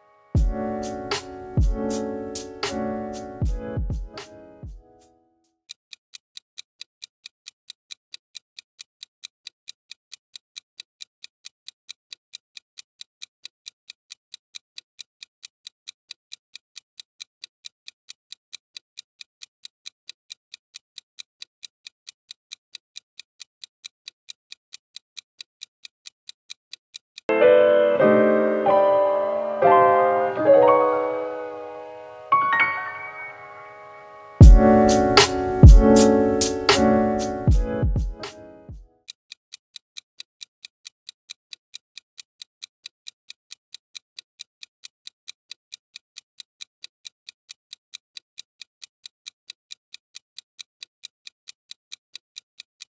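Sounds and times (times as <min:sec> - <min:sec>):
electric piano tune: 0:00.4 - 0:04.7, 0:27.3 - 0:38.7
countdown timer ticking: 0:00.4 - 0:05.1, 0:27.3 - 0:38.8.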